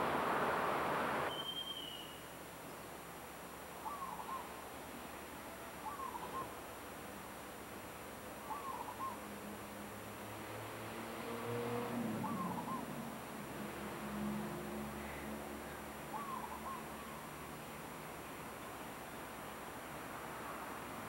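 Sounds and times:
bird calling: 0:01.2 - 0:02.3, 0:03.8 - 0:04.5, 0:05.8 - 0:06.6, 0:08.5 - 0:09.2, 0:12.2 - 0:12.9, 0:16.1 - 0:17.2.

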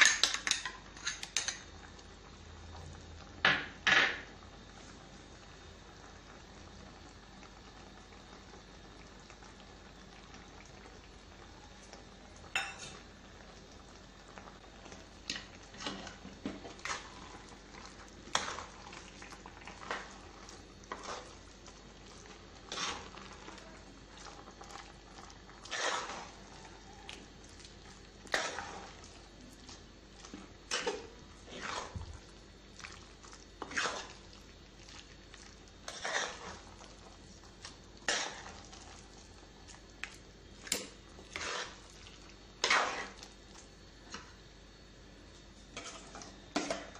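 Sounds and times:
spoon scraping earthenware pot: 0:22.7 - 0:23.3, 0:25.6 - 0:26.4, 0:30.3 - 0:32.0, 0:33.6 - 0:34.2, 0:35.8 - 0:36.7, 0:38.0 - 0:38.8, 0:40.6 - 0:41.9, 0:42.6 - 0:43.3, 0:45.8 - 0:46.9.

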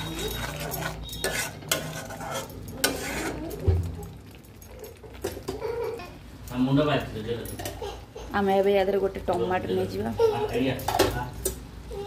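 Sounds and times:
spatula scraping pan: 0:00.0 - 0:03.9
paste sizzling in oil: 0:00.0 - 0:04.0.

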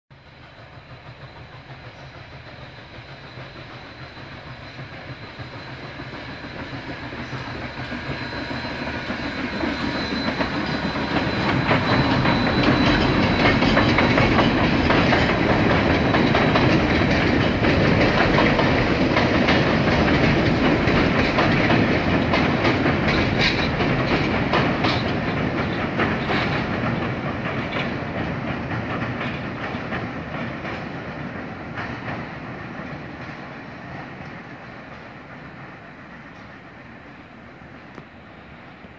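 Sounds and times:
train rumbling over a bridge: 0:00.1 - 0:38.9
wheels clicking over rail joints: 0:09.1 - 0:35.3.

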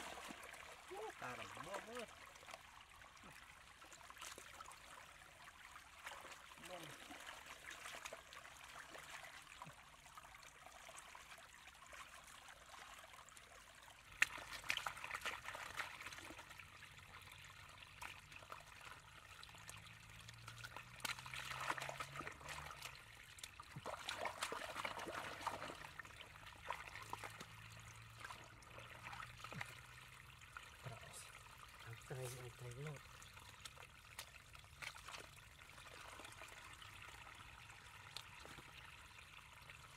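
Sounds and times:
water trickling and pouring: 0:00.0 - 0:39.9
hands splashing in water: 0:14.1 - 0:16.2.

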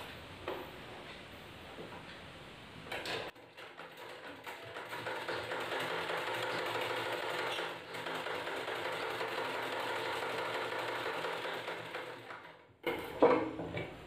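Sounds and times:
sewing machine running: 0:03.4 - 0:12.6.

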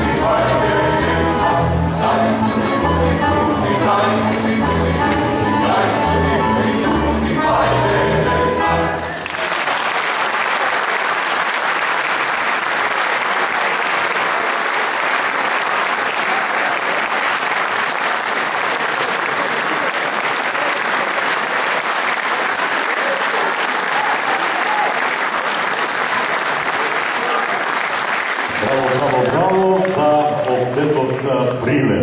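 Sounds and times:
large audience applauding: 0:09.0 - 0:31.4.

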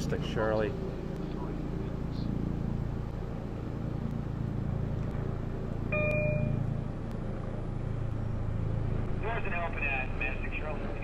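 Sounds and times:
short electronic beep: 0:05.9 - 0:06.6.

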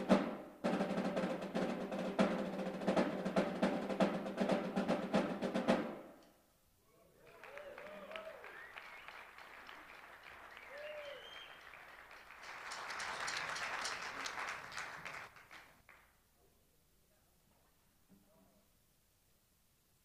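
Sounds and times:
audience applauding: 0:07.2 - 0:16.1.

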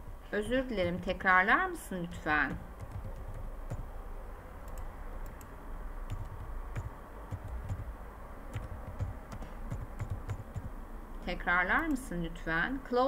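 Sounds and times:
computer keyboard typing: 0:02.4 - 0:03.9, 0:04.6 - 0:10.8.

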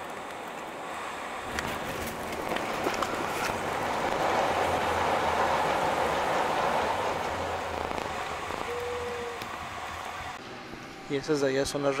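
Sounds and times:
aircraft engine and rolling noise: 0:00.0 - 0:12.0
brief steady tone: 0:08.6 - 0:09.4.

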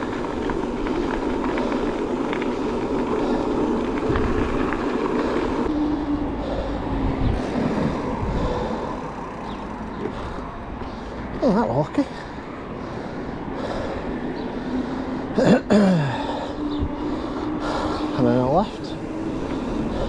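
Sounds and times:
wind on microphone: 0:00.0 - 0:09.0
tyres rolling on road: 0:00.0 - 0:20.0.

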